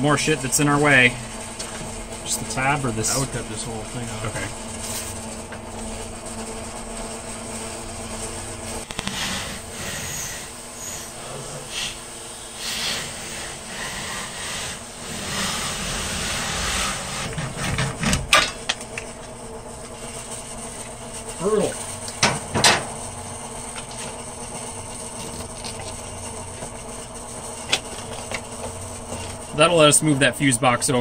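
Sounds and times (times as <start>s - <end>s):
sharp clicks: 8.8s - 9.6s.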